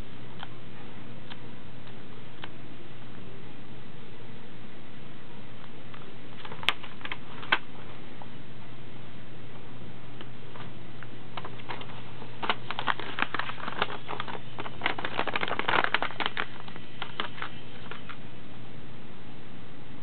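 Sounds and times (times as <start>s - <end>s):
steady low hum: 0.0s - 20.0s
paper rustling and crackling: 6.3s - 7.9s, 11.4s - 18.2s.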